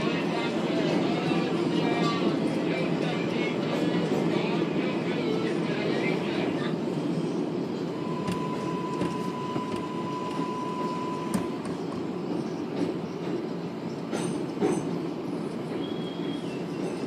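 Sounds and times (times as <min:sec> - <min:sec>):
train wheels rumbling on rails: 0:00.0 - 0:17.0
steady whine: 0:07.9 - 0:11.8
rail joint clicks: 0:08.0 - 0:17.0
wheel squeals: 0:15.7 - 0:17.0.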